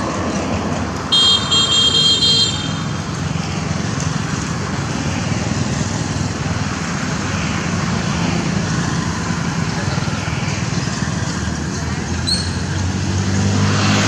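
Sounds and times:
road traffic noise: 0.0s - 14.0s
vehicle horn pulses: 1.1s - 3.0s.

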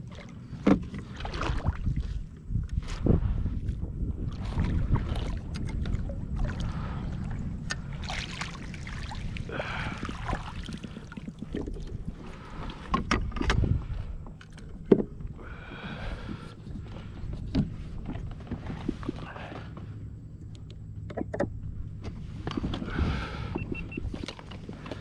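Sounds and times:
low rumbling wind: 0.0s - 25.0s
water noise: 0.0s - 25.0s
sharp knocks and clicks: 20.6s - 21.6s.

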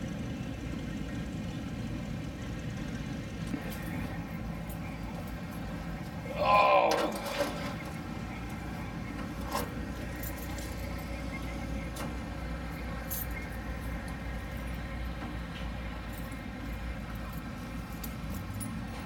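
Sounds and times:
car engine idling: 0.0s - 19.0s.

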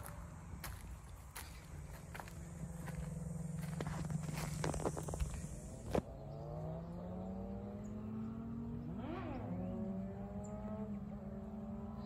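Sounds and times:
vehicle engines accelerating: 0.0s - 12.0s.

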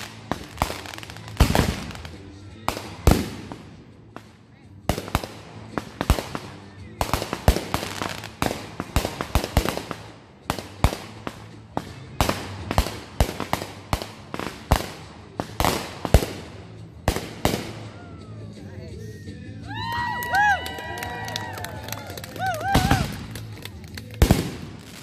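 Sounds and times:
fireworks bangs: 0.0s - 4.3s, 4.9s - 17.8s, 22.6s - 25.0s.

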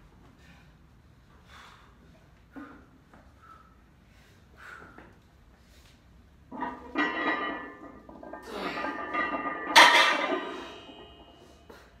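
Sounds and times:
weight plates clanking: 6.5s - 11.7s.

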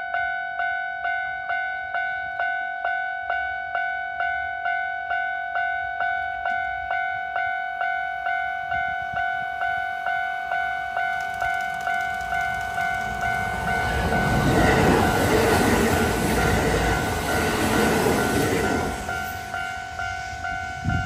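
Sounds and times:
level crossing warning bell: 0.0s - 21.0s
approaching train: 5.9s - 21.0s.

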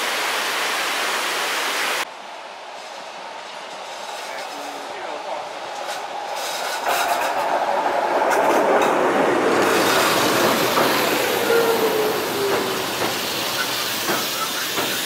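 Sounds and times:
train rail rumble: 2.1s - 15.0s
wheels clicking over rails: 5.7s - 15.0s.

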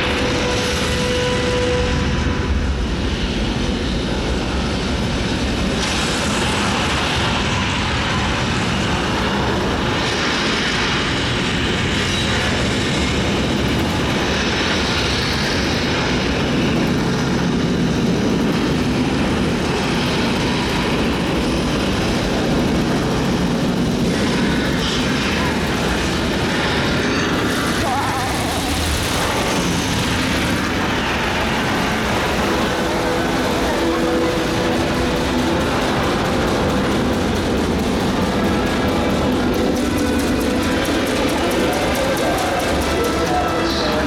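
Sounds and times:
rocket engines rumbling over loudspeakers: 0.0s - 44.0s.

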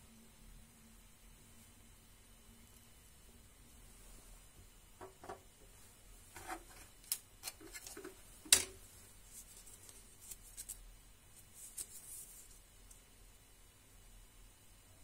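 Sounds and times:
paper wrapper crinkling: 9.2s - 10.8s, 11.4s - 12.6s.

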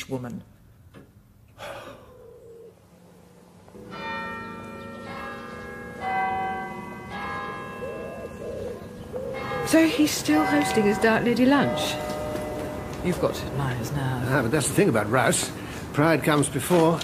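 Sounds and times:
church bells ringing: 3.7s - 16.0s.

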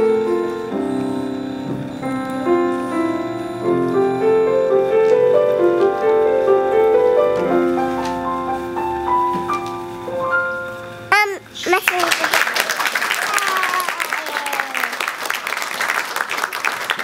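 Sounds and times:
slow piano notes and chords: 0.0s - 11.2s.

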